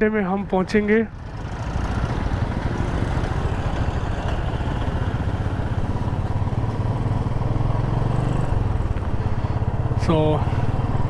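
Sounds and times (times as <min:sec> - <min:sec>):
wind and road noise: 0:00.0 - 0:11.0
motorcycle engine running: 0:01.1 - 0:11.0.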